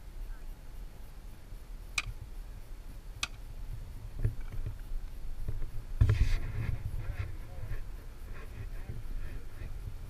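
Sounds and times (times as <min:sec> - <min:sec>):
nozzle sharp clicks: 0:03.2 - 0:03.4.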